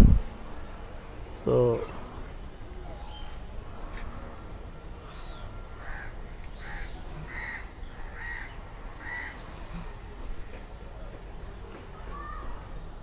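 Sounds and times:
crow cawing: 0:05.8 - 0:09.4.

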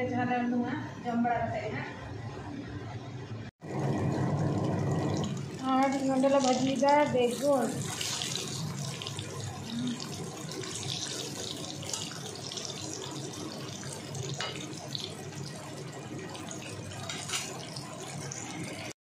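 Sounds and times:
food sizzling in oil: 0:03.7 - 0:18.9.

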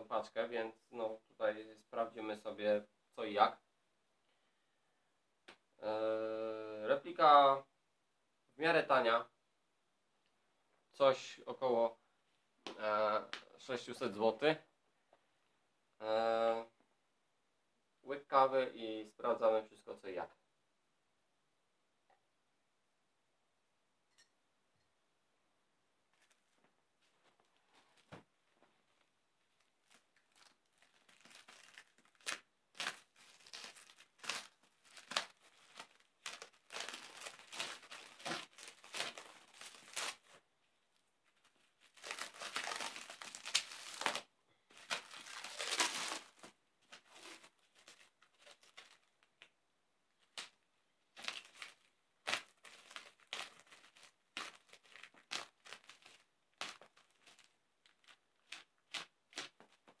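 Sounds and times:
plastic crackling and crinkling: 0:26.0 - 1:00.0
plastic tearing: 0:29.5 - 0:40.4, 0:41.0 - 0:49.5, 0:50.2 - 1:00.0.

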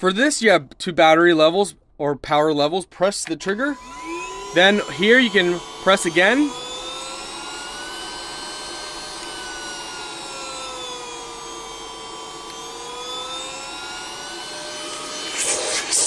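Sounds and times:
vacuum motor whine: 0:03.4 - 0:16.0.

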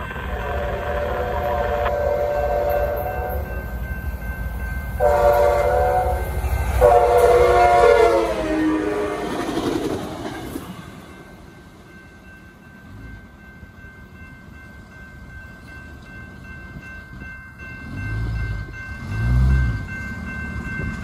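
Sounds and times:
train horn blasts: 0:00.0 - 0:03.8, 0:05.0 - 0:09.6
train rumble: 0:00.0 - 0:21.0.

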